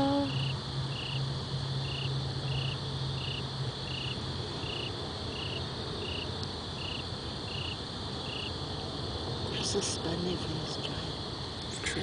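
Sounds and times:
cricket chirping: 0.0s - 12.0s
low steady hum: 0.0s - 12.0s.

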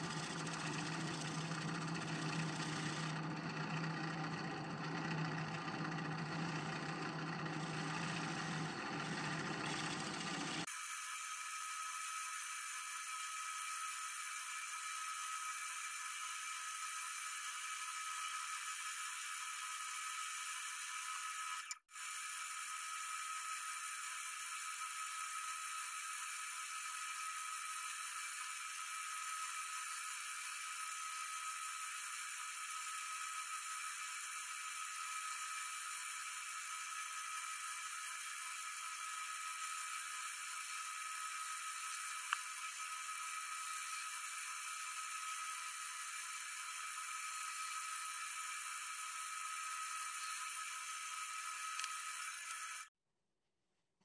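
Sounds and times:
gouge cutting wood: 0.0s - 10.7s
wood lathe whirring: 0.0s - 52.9s.

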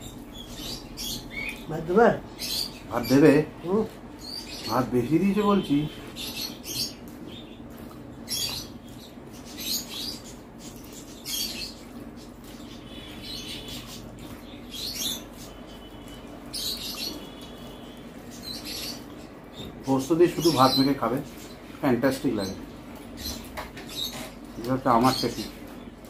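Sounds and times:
wet chewing: 7.0s - 9.0s.

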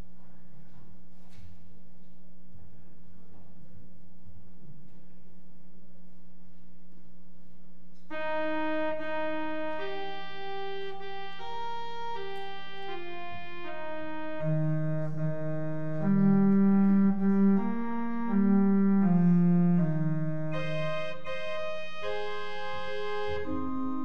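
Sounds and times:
church organ chords: 8.1s - 24.0s.

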